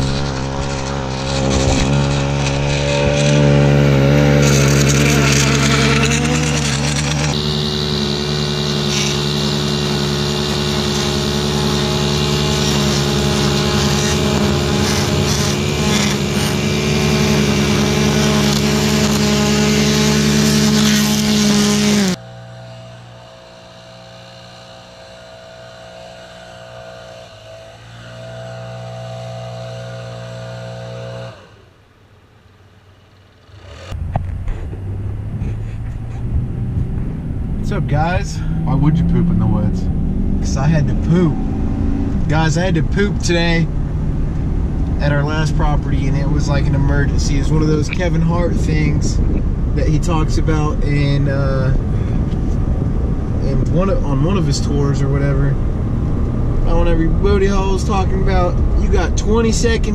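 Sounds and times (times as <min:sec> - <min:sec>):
edger engine running at high speed: 0:00.0 - 0:31.8, 0:33.1 - 0:59.9
string trimmer engine: 0:00.0 - 0:31.8, 0:32.9 - 0:59.9
pickup truck cab rumble: 0:33.2 - 0:59.9.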